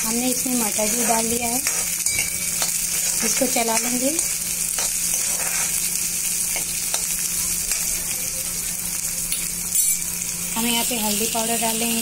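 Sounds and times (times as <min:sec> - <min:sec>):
vegetables sizzling in hot oil: 0:00.0 - 0:12.0
spatula scraping and tapping pan: 0:00.8 - 0:05.8.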